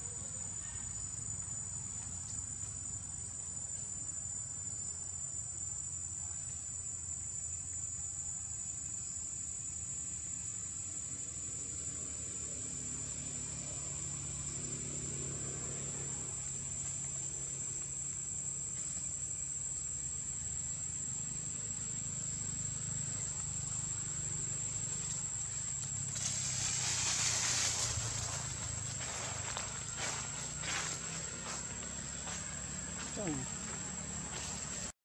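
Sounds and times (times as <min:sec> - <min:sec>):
high-pitched insect drone: 0:00.0 - 0:34.9
low engine hum: 0:21.1 - 0:34.9
dry leaves rustling: 0:24.8 - 0:32.1.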